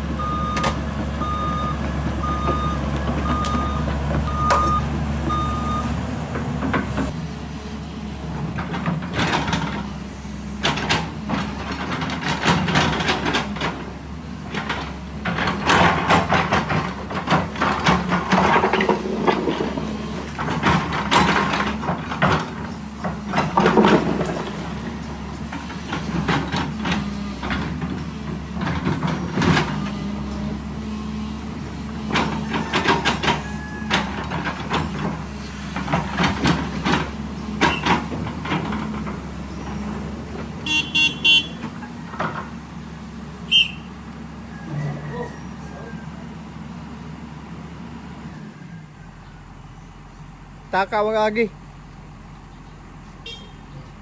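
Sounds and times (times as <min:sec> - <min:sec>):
excavator diesel engine running: 0:00.0 - 0:54.0
bucket clanking and scraping soil: 0:10.7 - 0:30.7.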